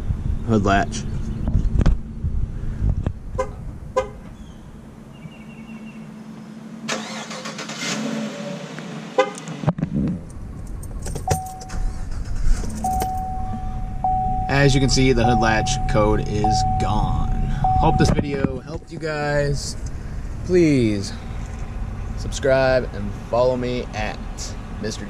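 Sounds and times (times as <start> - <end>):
electronic chime: 12.8 - 18.4.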